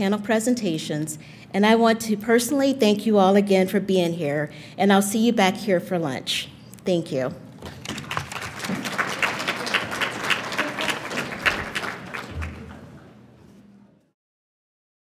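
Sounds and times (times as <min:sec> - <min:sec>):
audience clapping: 0:07.6 - 0:13.1.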